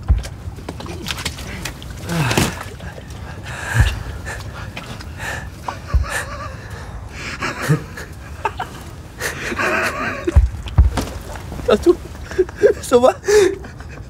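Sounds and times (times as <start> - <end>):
dull low thumps: 0.0 - 12.6
steady low rumble: 0.0 - 14.0
man breathing hard: 2.0 - 8.2, 9.2 - 9.8.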